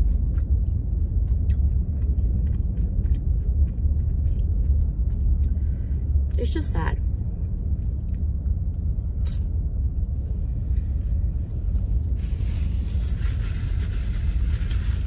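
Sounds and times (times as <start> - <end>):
low rumble in car cabin: 0.0 - 15.0
paper napkin rustling: 12.1 - 15.0.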